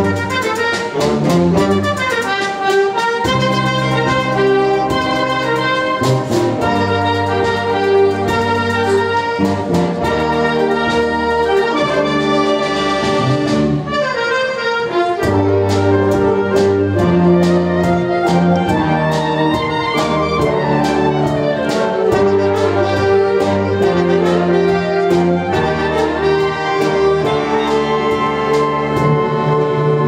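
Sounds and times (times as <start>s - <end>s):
drum kit with cymbals: 0.0s - 11.8s
brass and woodwinds playing chords: 0.0s - 30.0s.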